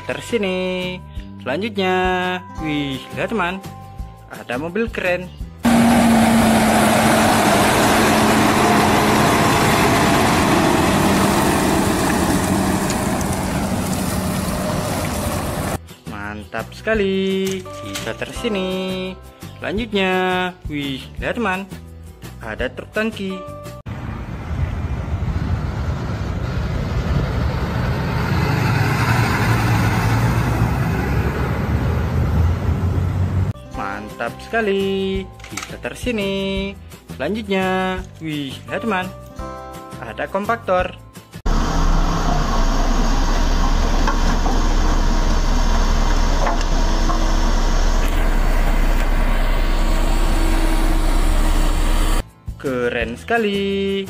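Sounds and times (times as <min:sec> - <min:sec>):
truck engine driving past: 0:05.6 - 0:15.8, 0:23.9 - 0:33.6, 0:41.5 - 0:52.2.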